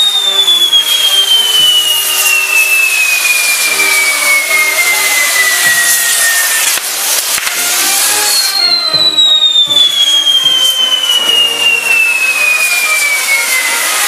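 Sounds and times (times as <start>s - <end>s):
falling firework whistle: 0.0s - 14.0s
fireworks hissing: 0.0s - 14.0s.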